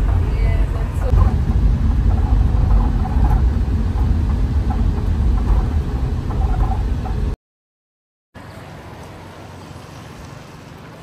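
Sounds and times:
wind buffeting microphone: 0:00.0 - 0:07.4.

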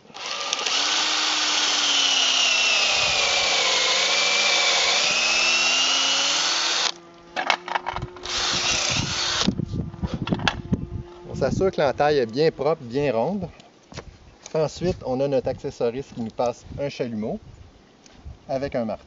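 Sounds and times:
cordless drill boring into wood: 0:00.0 - 0:07.0, 0:08.2 - 0:09.6.

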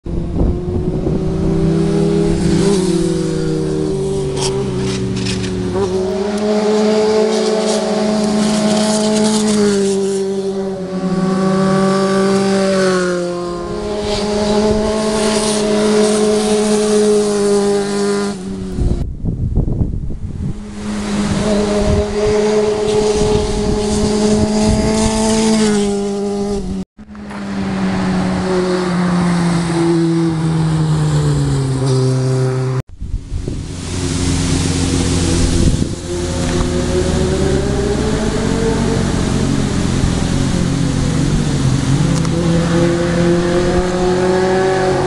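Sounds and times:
motorcycle engines revving: 0:00.0 - 0:19.0, 0:20.2 - 0:45.0.

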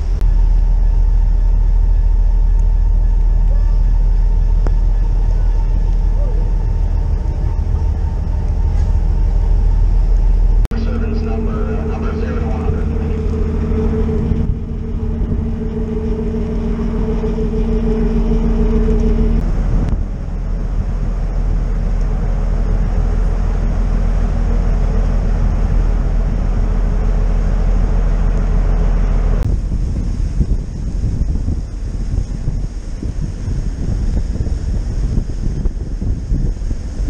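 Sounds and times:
two-note hum: 0:00.0 - 0:29.6
ferry engines droning: 0:00.0 - 0:37.0
rushing noise: 0:00.0 - 0:37.0.

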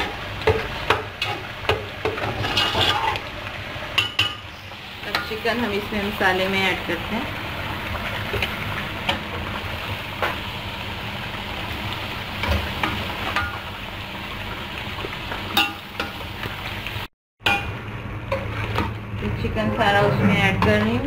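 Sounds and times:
chicken sizzling in hot oil: 0:00.0 - 0:19.2.

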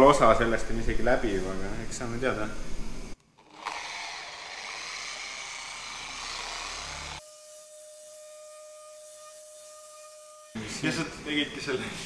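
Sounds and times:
electric machine polisher running: 0:03.4 - 0:07.3.

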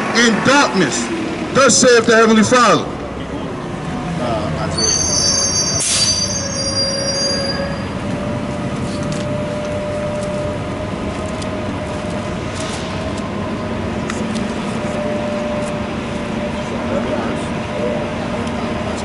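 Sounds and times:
heavy vehicle hum and rumble: 0:00.0 - 0:19.0
brake squeal: 0:04.5 - 0:10.6
air brake hiss: 0:05.7 - 0:06.4.

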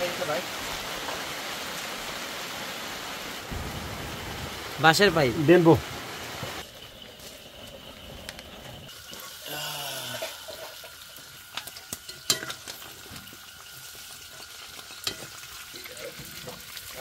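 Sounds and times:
chicken sizzling in oil: 0:06.3 - 0:17.0.

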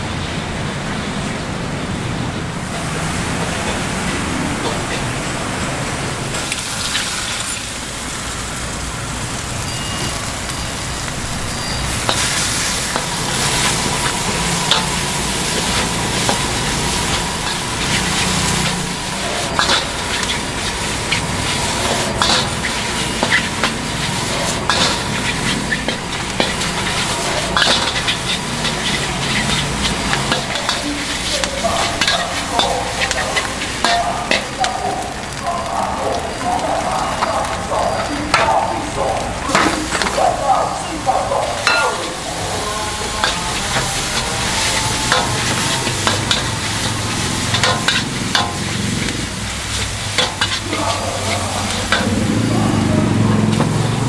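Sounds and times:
food sizzling in a pan: 0:06.2 - 0:54.0
metal utensil clinking and scraping: 0:11.9 - 0:34.7, 0:41.6 - 0:54.0.

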